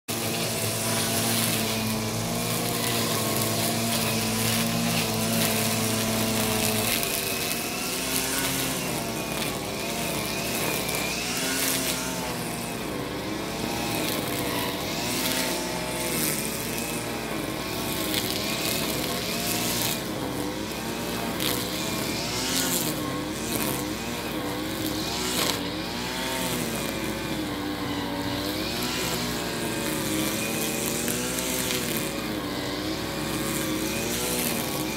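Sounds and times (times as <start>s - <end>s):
lawn mower engines running: 0.1s - 34.9s.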